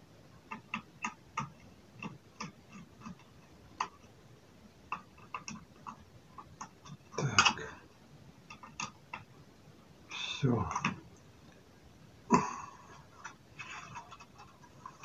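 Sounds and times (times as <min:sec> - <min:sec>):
laptop parts clicking and tapping: 0:00.5 - 0:04.1, 0:04.9 - 0:07.6, 0:08.5 - 0:09.3.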